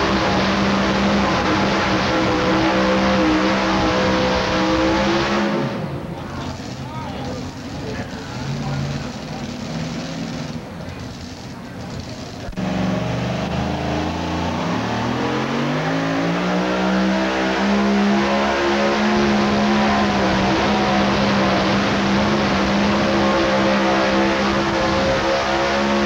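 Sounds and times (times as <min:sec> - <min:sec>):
truck engine at full throttle: 0:00.0 - 0:26.0.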